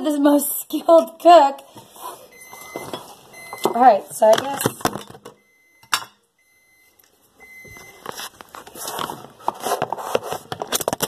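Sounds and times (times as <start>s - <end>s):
rustling handling noise: 7.0s - 11.0s.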